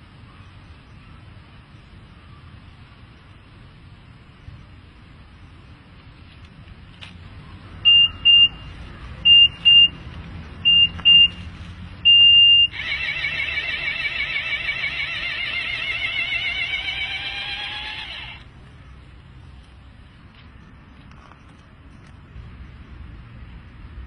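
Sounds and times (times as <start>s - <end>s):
electronic timer beeps: 7.9s - 10.0s, 10.6s - 11.4s, 12.0s - 12.8s
loud wavering warble: 12.6s - 18.4s.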